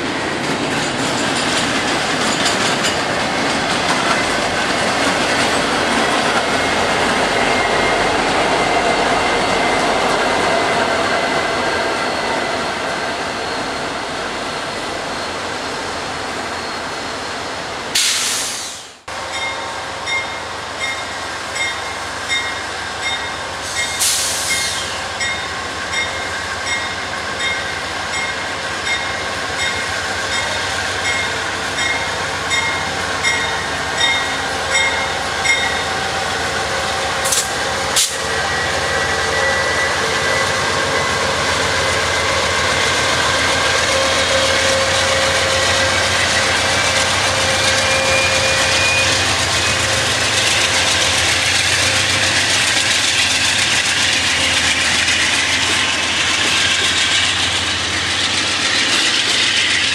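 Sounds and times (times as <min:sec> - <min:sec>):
diesel locomotive engine rumbling: 0:00.0 - 0:59.9
locomotive bell ringing: 0:19.2 - 0:36.2, 0:38.3 - 0:52.5.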